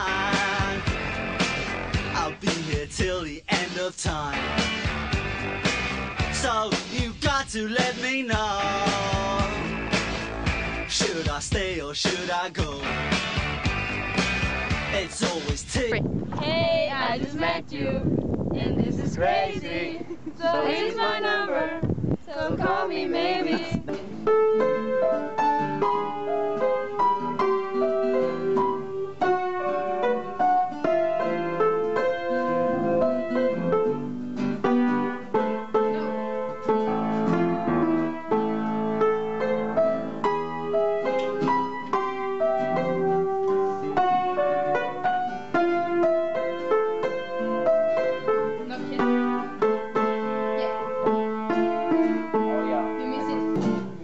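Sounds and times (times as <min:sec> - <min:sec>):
upright piano playing: 0:00.0 - 0:02.6, 0:08.2 - 0:11.2, 0:12.7 - 0:17.3, 0:22.6 - 0:54.0.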